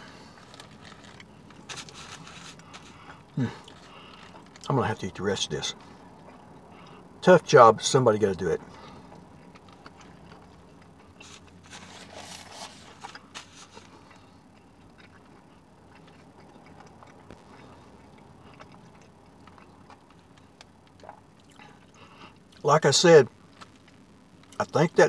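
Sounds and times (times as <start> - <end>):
low steady hum: 0.0 - 25.0
wrapper rustling and crinkling: 0.2 - 3.0, 11.2 - 13.9.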